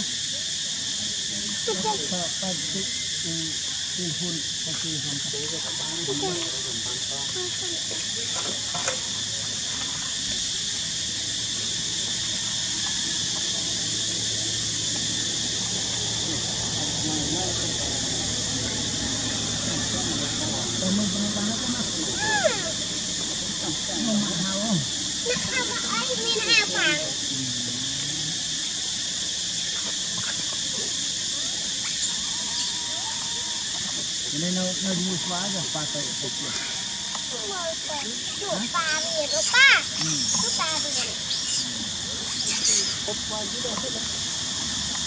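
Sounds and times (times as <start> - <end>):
high-pitched insect drone: 0.0 - 45.0
monkey moan: 27.0 - 28.5
monkey squeaks: 39.0 - 41.6, 42.3 - 43.1.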